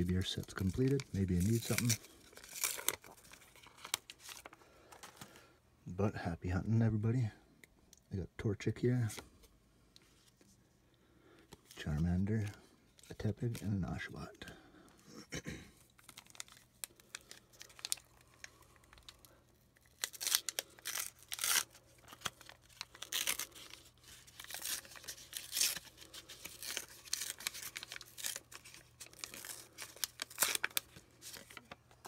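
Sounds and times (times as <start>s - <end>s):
wrapper tearing and crinkling: 0.0s - 5.2s, 15.9s - 31.8s.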